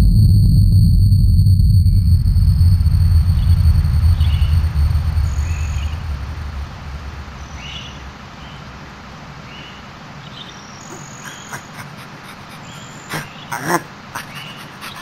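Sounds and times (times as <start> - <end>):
deep rumble: 0.0 - 8.3.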